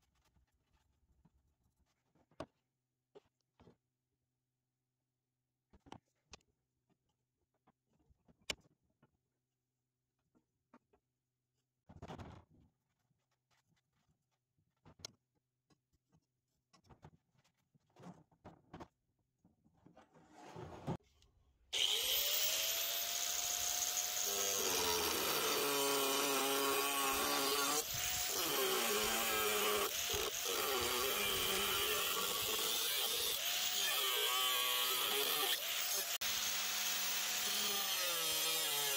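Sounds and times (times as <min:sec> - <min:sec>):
angle grinder cutting steel: 0:21.8 - 0:38.9.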